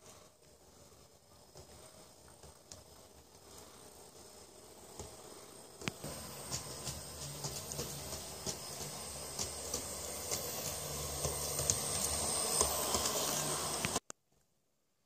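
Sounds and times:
model train motor hum: 0:01.6 - 0:14.0
wheels clicking over rail joints: 0:05.8 - 0:13.2.

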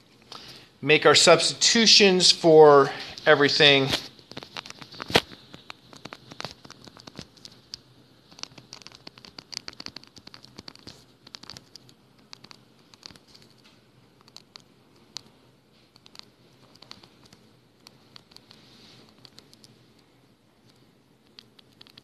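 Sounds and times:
stylus tapping and scratching on screen: 0:03.1 - 0:22.0.

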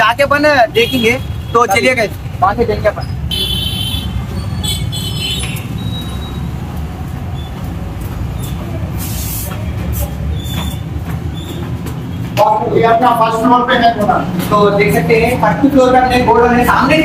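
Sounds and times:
traffic rumble: 0:00.0 - 0:17.0
car horn toot: 0:03.3 - 0:06.0
brief hisses: 0:08.4 - 0:10.2.

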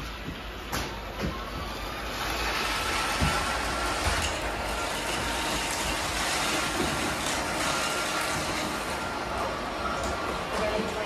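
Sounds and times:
robot vacuum cleaners whirring: 0:00.0 - 0:11.0.

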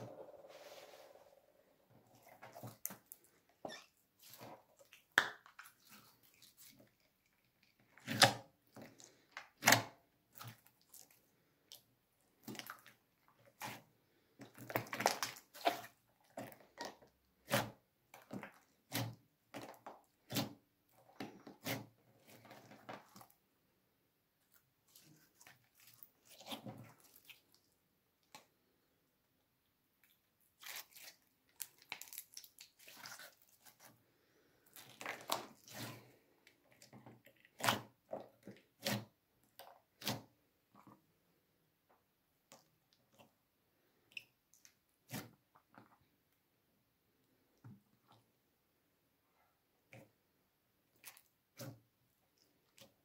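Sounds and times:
slime squelching: 0:00.0 - 0:23.5, 0:24.4 - 0:28.5, 0:30.0 - 0:34.0, 0:34.6 - 0:41.1.

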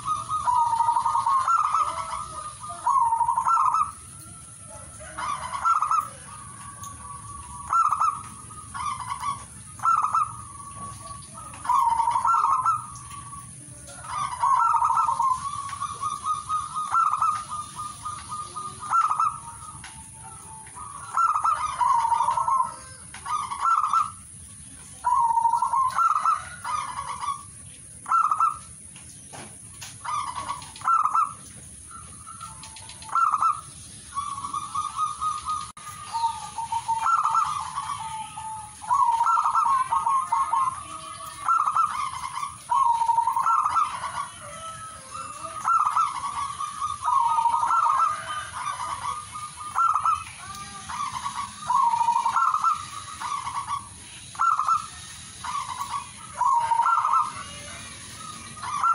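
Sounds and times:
dove cooing: 0:00.0 - 0:58.9.

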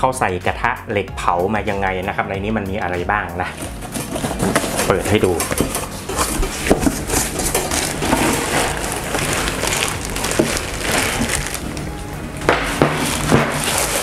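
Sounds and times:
cardboard box flaps scraping: 0:03.5 - 0:11.8
plastic and paper crinkling: 0:03.5 - 0:14.0.

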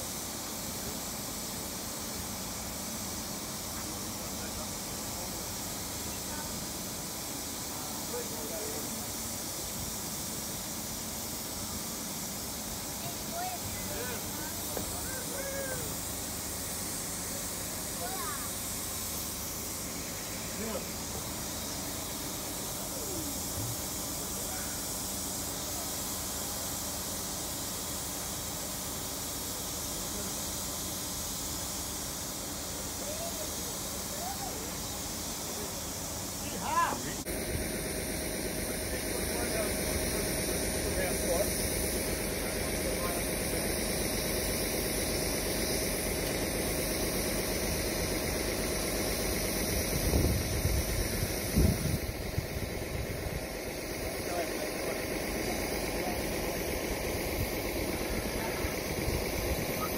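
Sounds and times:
engine idling: 0:00.0 - 0:59.9
steady outdoor hiss: 0:00.0 - 0:59.9
faint voices talking: 0:12.7 - 0:19.0, 0:32.8 - 0:44.8, 0:51.0 - 0:59.9.

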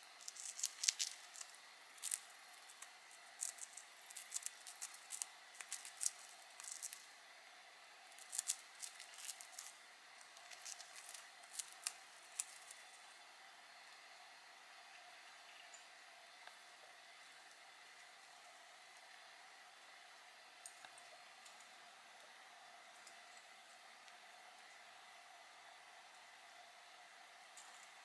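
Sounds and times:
bird beak shredding wood: 0:00.2 - 0:07.1, 0:08.1 - 0:12.8.

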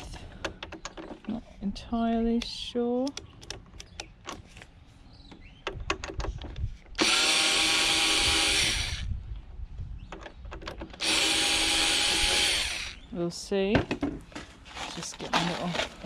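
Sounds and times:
electric screwdriver running: 0:07.0 - 0:09.1, 0:11.0 - 0:13.0.

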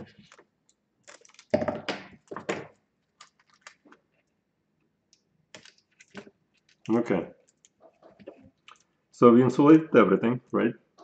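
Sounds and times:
tape peeling and crackling: 0:00.0 - 0:01.6, 0:03.0 - 0:04.1.

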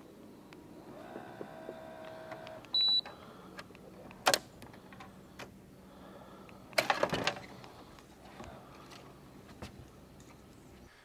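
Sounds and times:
faint steady hum: 0:00.0 - 0:11.0
electronic beep: 0:02.8 - 0:03.1.

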